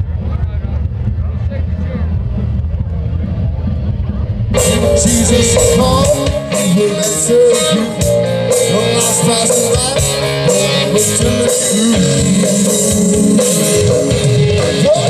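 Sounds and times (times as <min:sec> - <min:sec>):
low rumble: 0:00.1 - 0:07.5
live rock band playing: 0:03.0 - 0:15.0
man singing: 0:04.6 - 0:15.0.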